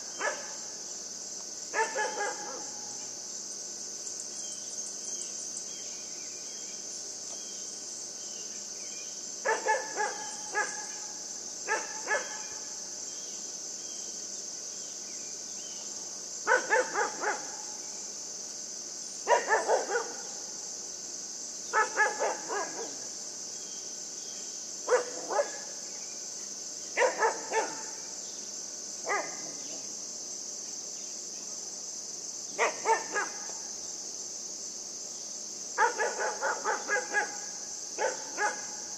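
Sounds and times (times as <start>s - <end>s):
puppy barking: 0.2s - 0.6s, 1.8s - 2.8s, 9.5s - 10.8s, 11.7s - 12.4s, 16.5s - 17.6s, 19.3s - 20.3s, 21.8s - 23.0s, 24.9s - 25.7s, 27.0s - 27.9s, 29.1s - 29.8s, 32.6s - 33.5s, 35.8s - 37.4s, 38.0s - 38.7s.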